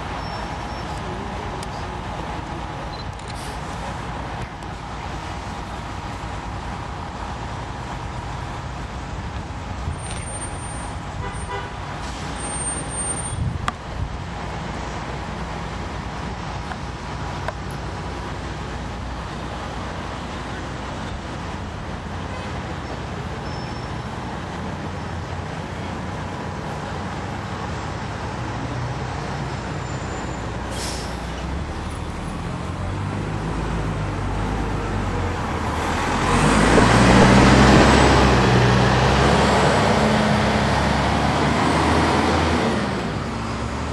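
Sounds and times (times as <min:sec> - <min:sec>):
bus diesel engine: 0:00.0 - 0:43.9
sharp air hiss: 0:30.6 - 0:31.5.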